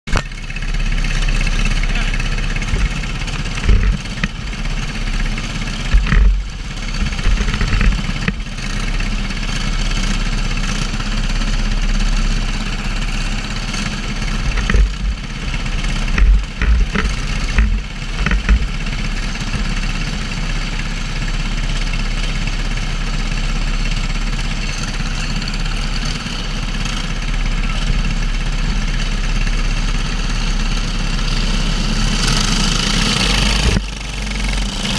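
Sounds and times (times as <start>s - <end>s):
kart engines idling: 0.1s - 34.9s.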